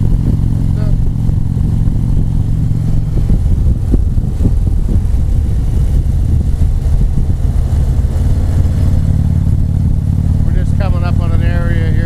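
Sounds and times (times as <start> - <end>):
motorcycle engine cruising: 0.0 - 12.0.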